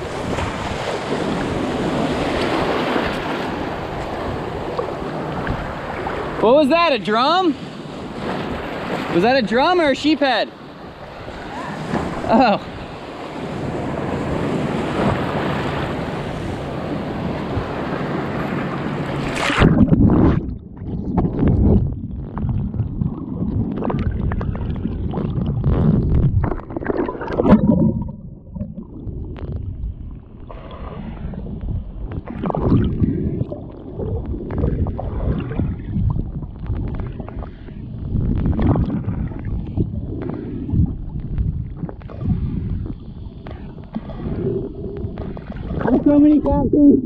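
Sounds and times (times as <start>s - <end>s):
muffled underwater rumbling: 10.7s - 47.0s.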